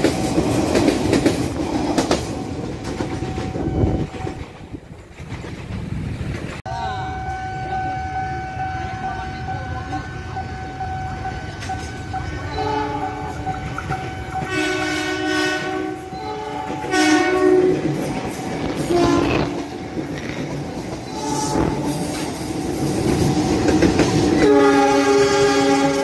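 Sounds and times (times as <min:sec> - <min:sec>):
train rumble and wheel clatter: 0:00.0 - 0:26.0
train horn blasts: 0:03.2 - 0:04.4, 0:06.7 - 0:17.9, 0:18.8 - 0:19.8, 0:21.1 - 0:22.1, 0:24.4 - 0:26.0.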